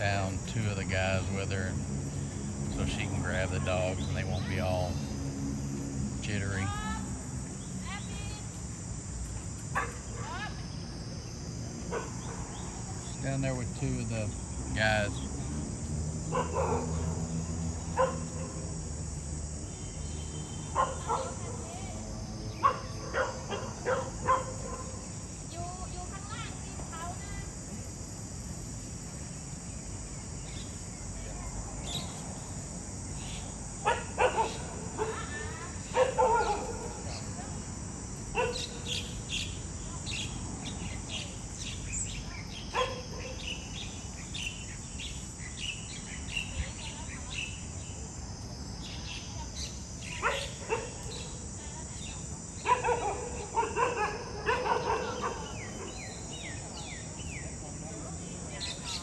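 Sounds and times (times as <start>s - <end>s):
insects chirring: 0.0s - 59.0s
dogs barking: 9.8s - 10.2s, 11.9s - 12.6s, 16.3s - 17.2s, 17.9s - 18.6s, 20.7s - 21.7s, 22.6s - 25.0s, 33.8s - 37.0s, 38.3s - 39.0s, 42.7s - 43.5s, 50.1s - 51.3s, 52.6s - 56.5s.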